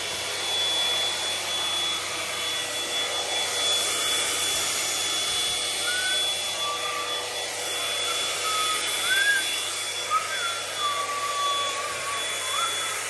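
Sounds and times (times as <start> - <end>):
hot-air brush blower running: 0.0 - 13.0.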